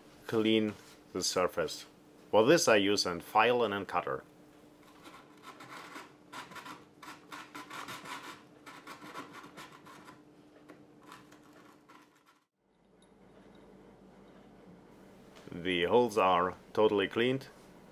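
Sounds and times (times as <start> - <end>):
needle file rasping: 4.8 - 10.2.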